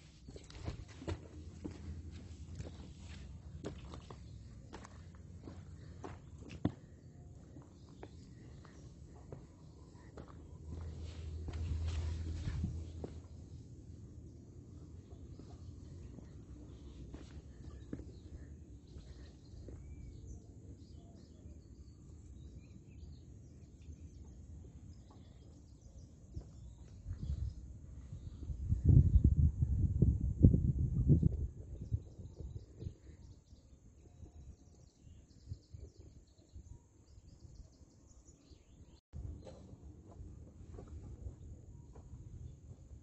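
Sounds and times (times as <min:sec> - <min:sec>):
low steady rumble: 0:00.0 - 0:21.1
small birds chirping: 0:00.0 - 0:29.3.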